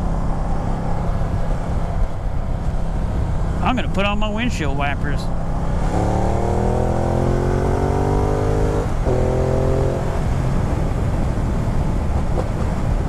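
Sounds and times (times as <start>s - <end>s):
motorcycle engine accelerating: 5.3s - 13.0s.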